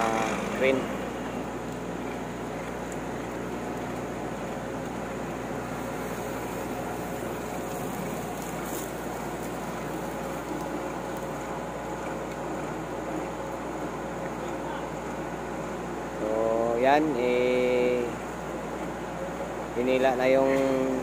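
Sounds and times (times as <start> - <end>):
truck engine running: 0.0 - 16.2.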